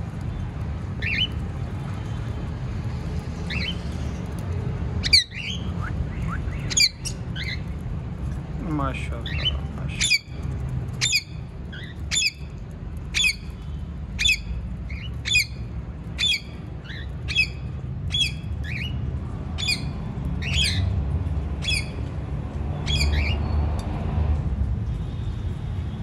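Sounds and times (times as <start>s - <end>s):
parrots squawking: 5.0s - 7.7s, 9.3s - 10.3s.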